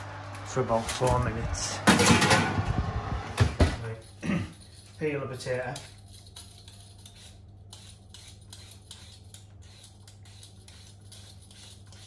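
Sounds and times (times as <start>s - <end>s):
low hum: 0.0s - 5.0s
peeler scraping potato: 5.6s - 12.0s.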